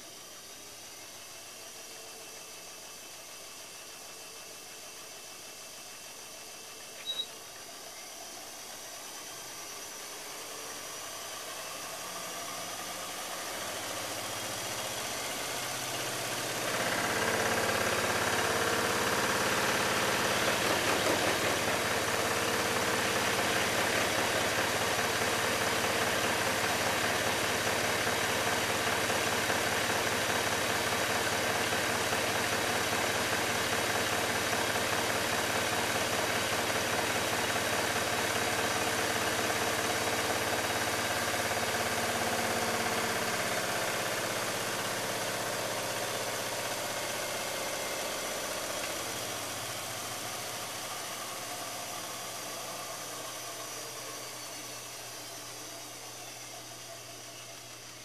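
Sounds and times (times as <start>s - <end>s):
washing machine spinning and shaking: 7.7s - 58.0s.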